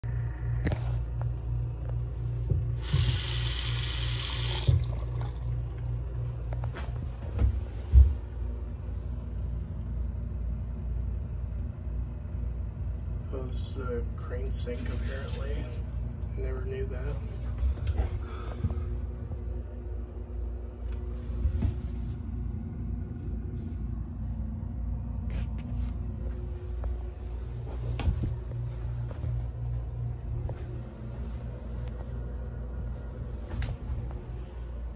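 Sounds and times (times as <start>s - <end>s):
low pulsing hum: 0.0s - 34.9s
faucet running into sink: 2.8s - 5.6s.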